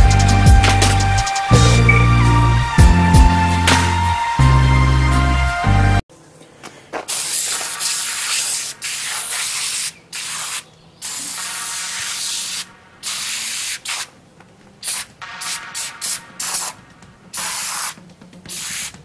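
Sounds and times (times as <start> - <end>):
aerosol can spraying: 7.1 - 14.1, 14.8 - 19.0.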